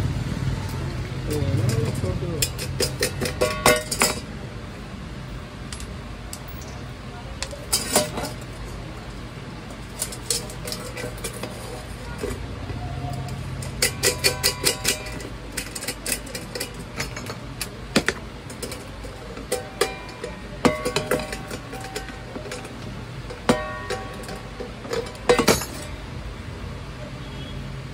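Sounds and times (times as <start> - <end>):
metal pan knocks ringing: 19.4 - 25.9.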